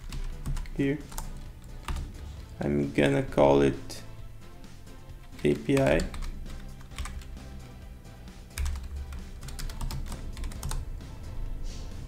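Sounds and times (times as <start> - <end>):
keyboard typing: 0.0 - 2.5, 5.2 - 7.4, 8.5 - 10.8
soft background music: 0.0 - 12.0.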